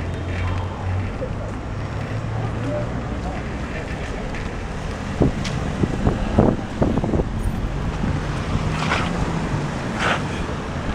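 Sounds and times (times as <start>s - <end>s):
bicycle road rumble: 0.0s - 10.9s
wind buffeting microphone: 2.9s - 10.9s.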